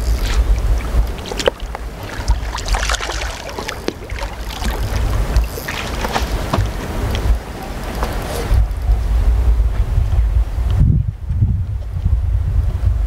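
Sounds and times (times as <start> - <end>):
fish splashing in water: 0.0 - 8.6
wind buffeting microphone: 0.0 - 13.0.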